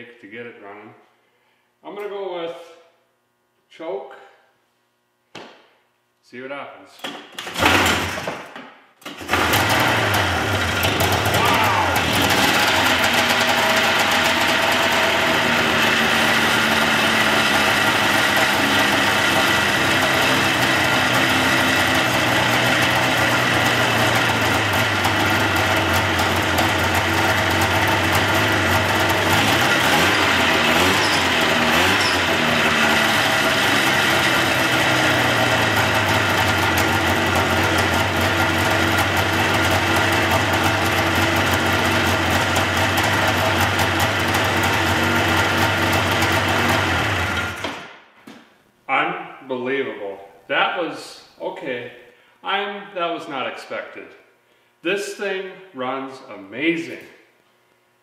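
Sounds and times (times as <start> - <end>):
snowmobile engine running: 9.3 - 47.6.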